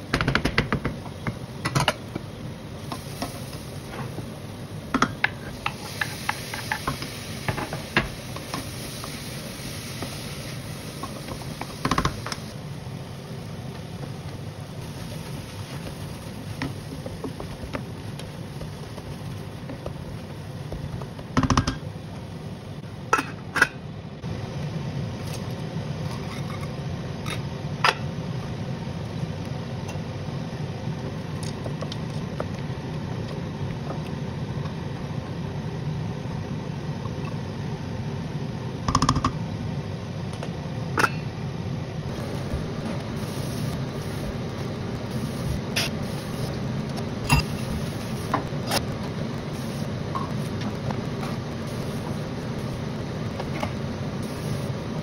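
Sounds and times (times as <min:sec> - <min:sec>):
food sizzling in a pot: 0:02.6 - 0:21.0, 0:42.1 - 0:55.0.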